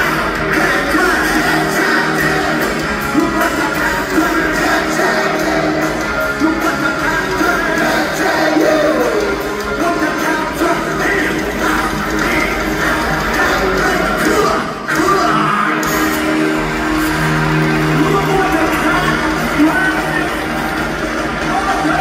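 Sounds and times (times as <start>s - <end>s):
man singing lead vocals: 0.0s - 16.1s
live hard rock band: 0.0s - 22.0s.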